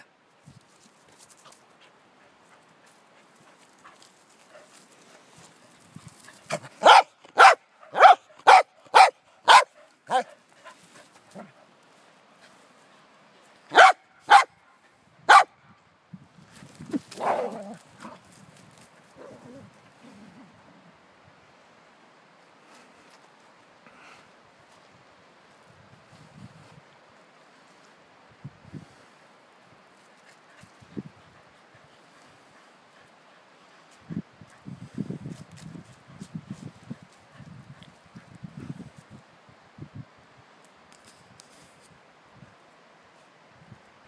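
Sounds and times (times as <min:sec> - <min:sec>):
dog barking: 0:06.8 - 0:10.3, 0:13.7 - 0:14.6, 0:15.3 - 0:15.5.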